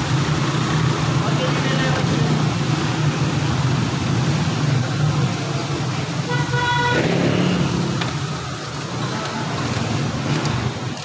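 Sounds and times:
car engine humming: 0.0 - 11.0
car horn toot: 6.3 - 7.2.

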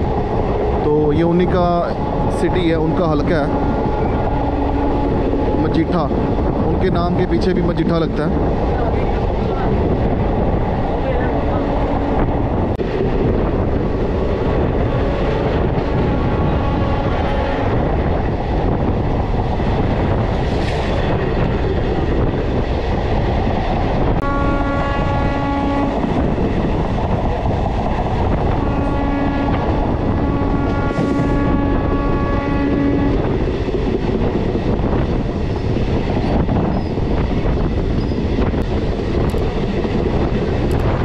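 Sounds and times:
train wheels rumbling on rails: 0.0 - 41.0
train horn: 16.2 - 17.8, 24.2 - 26.1, 28.4 - 33.3.

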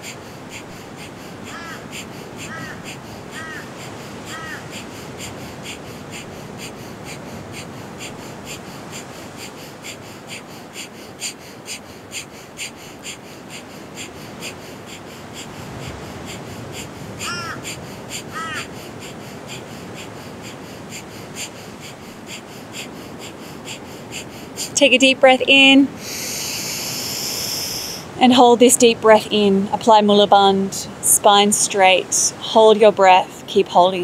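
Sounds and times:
bird calling: 0.1 - 7.1, 17.2 - 19.2
rapid nasal exhalations: 25.9 - 28.2.

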